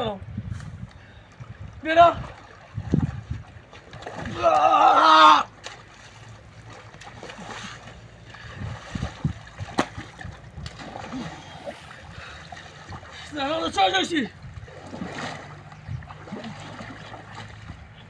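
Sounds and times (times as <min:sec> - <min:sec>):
river water splashing: 0:00.8 - 0:18.0
loud shout: 0:04.3 - 0:05.5.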